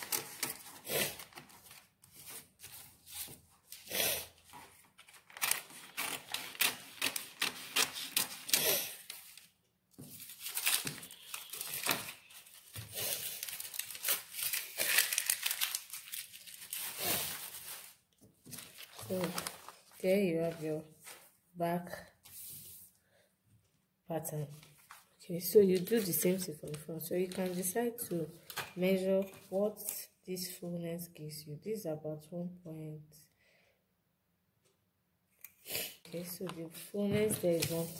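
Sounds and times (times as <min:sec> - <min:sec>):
paper rustling and crinkling: 0:00.0 - 0:21.4, 0:24.5 - 0:29.9, 0:36.1 - 0:37.9
scissors snipping paper: 0:05.1 - 0:09.2.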